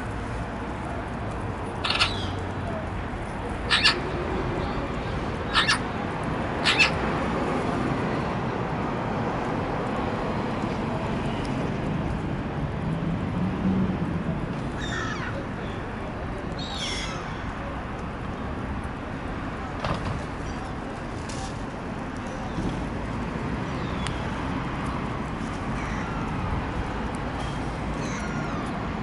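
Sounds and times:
jackdaws calling: 0:01.8 - 0:02.4, 0:03.7 - 0:04.1, 0:05.5 - 0:05.9, 0:06.6 - 0:07.0.

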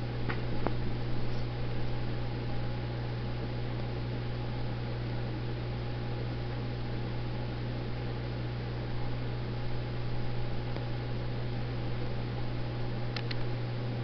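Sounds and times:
low electrical hum: 0:00.0 - 0:14.0
faint clicks: 0:13.1 - 0:13.5.

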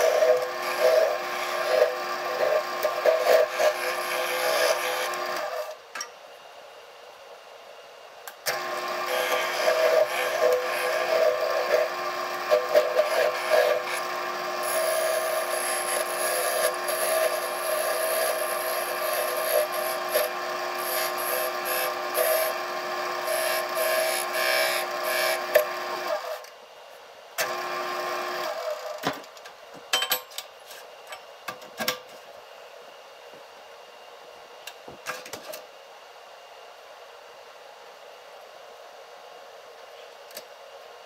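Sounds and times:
turning tool cutting wood: 0:00.0 - 0:05.8, 0:08.5 - 0:26.5, 0:27.4 - 0:29.0
wood lathe humming: 0:00.0 - 0:05.8, 0:08.5 - 0:26.4, 0:27.4 - 0:28.9.

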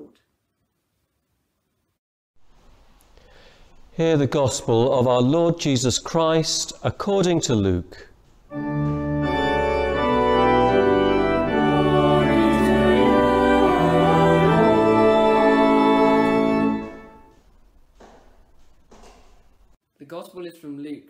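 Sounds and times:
church organ playing chords: 0:08.5 - 0:17.4.

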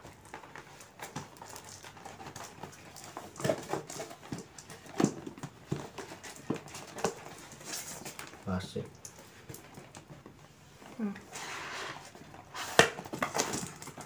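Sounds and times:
cardboard box scraping on tiles: 0:11.2 - 0:14.0.

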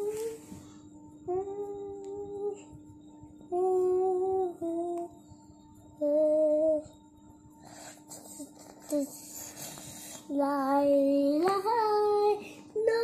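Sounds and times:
person humming a slow tune: 0:00.0 - 0:02.8, 0:03.4 - 0:05.3, 0:06.0 - 0:07.0
faint steady hum: 0:00.0 - 0:13.0.

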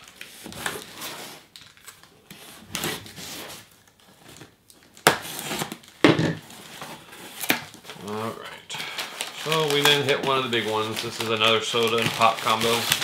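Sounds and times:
tape and cardboard rustling: 0:00.0 - 0:08.2, 0:09.0 - 0:13.0.

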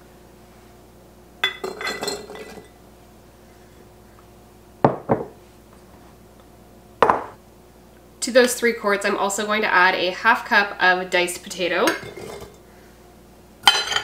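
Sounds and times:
metal cup clinking against glass jars: 0:01.4 - 0:02.7, 0:11.9 - 0:12.6, 0:13.7 - 0:14.0.

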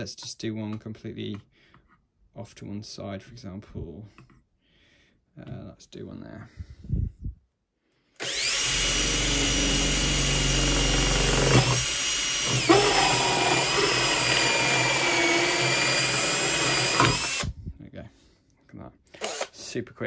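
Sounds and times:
drill whining through metal: 0:08.2 - 0:17.5, 0:19.2 - 0:19.6.

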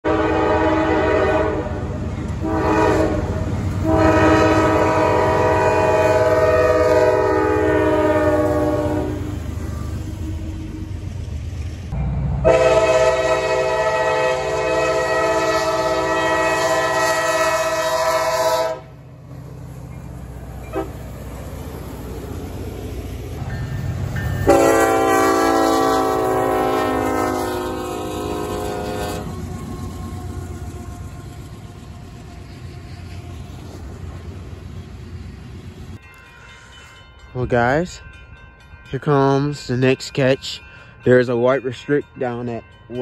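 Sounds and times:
locomotive air horn blasts: 0:00.0 - 0:10.6, 0:12.4 - 0:19.0, 0:20.7 - 0:21.0, 0:24.4 - 0:29.9
passing train rumble: 0:00.0 - 0:43.0.

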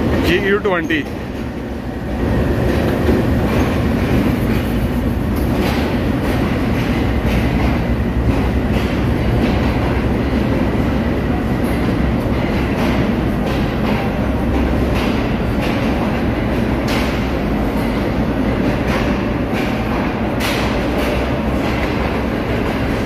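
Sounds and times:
diesel locomotive passing: 0:00.0 - 0:14.8
train coaches rumbling: 0:00.0 - 0:23.0
wheels clacking over rail joints: 0:02.2 - 0:23.0.

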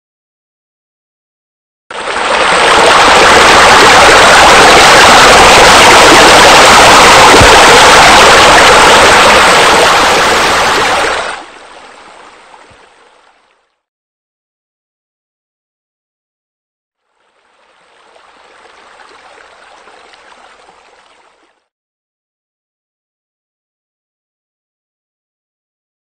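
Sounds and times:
splashing water rushing: 0:01.9 - 0:13.6.

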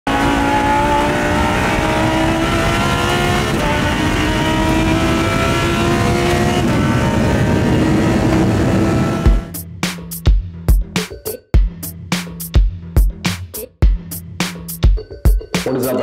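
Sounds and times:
race car engine at speed: 0:00.0 - 0:09.5.

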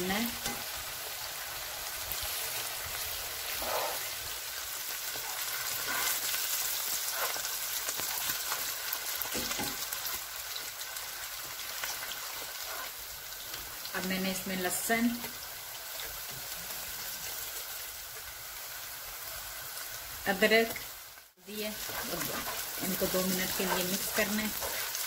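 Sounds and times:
onions sizzling in hot oil: 0:00.0 - 0:25.0
spatula scraping pan: 0:05.1 - 0:06.4, 0:07.0 - 0:07.5, 0:21.7 - 0:25.0.

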